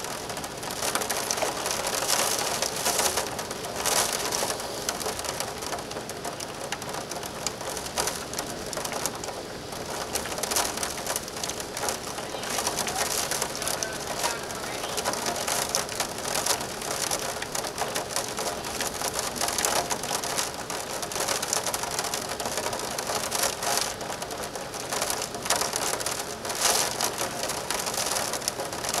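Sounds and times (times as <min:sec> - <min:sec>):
wind-driven rain: 0:00.0 - 0:29.0
surf breaking on rocks: 0:10.1 - 0:20.3.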